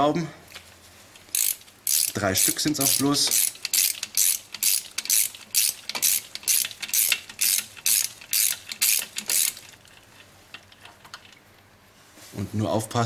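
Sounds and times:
hand ratchet clicking: 1.2s - 11.4s.

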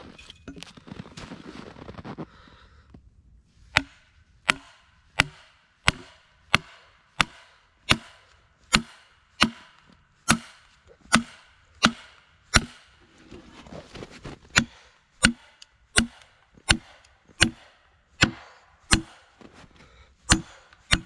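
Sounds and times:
axe striking log: 3.7s - 13.0s, 14.5s - 19.3s, 20.3s - 21.0s.

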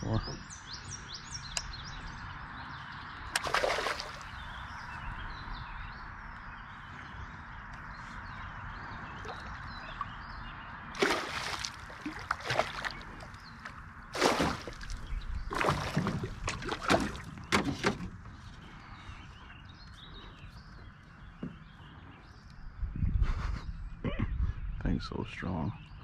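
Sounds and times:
fish splashing at surface: 3.4s - 4.4s, 11.0s - 13.4s, 14.2s - 17.3s.

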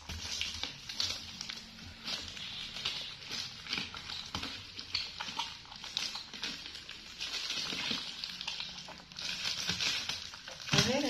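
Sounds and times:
chewing and mouth clicks: 0.1s - 10.7s.

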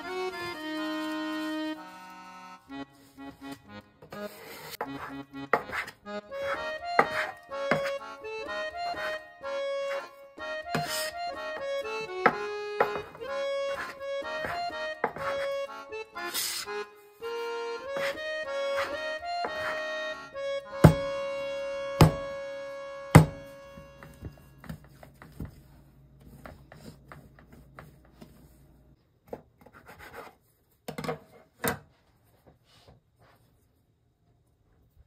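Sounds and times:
instrumental background music: 0.0s - 24.9s.

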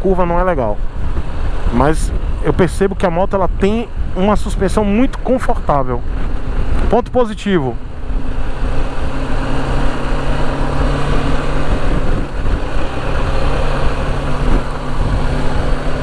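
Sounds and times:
motorcycle engine running: 7.7s - 16.0s.

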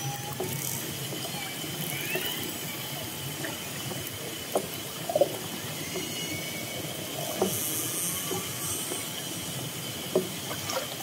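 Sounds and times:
faint rising whistles: 5.6s - 8.8s.

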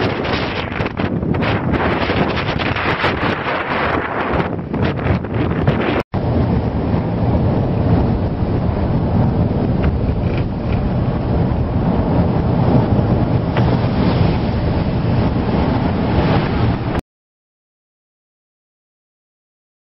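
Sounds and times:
wind buffeting microphone: 0.0s - 17.0s
car road noise: 6.3s - 17.0s.

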